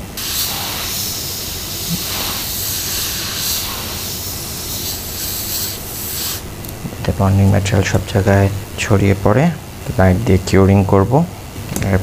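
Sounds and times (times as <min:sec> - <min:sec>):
compressed air hissing: 0:00.0 - 0:06.6.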